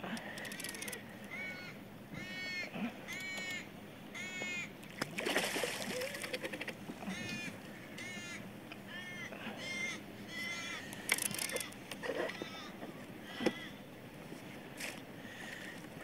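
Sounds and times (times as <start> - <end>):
bird cawing: 0.4 - 4.7, 5.8 - 13.9
fish splashing in water: 5.0 - 6.7.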